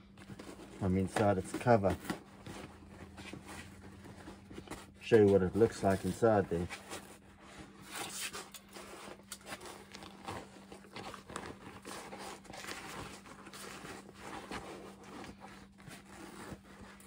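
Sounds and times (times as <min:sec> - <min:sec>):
seat cover peeling and rustling: 0:00.2 - 0:17.0.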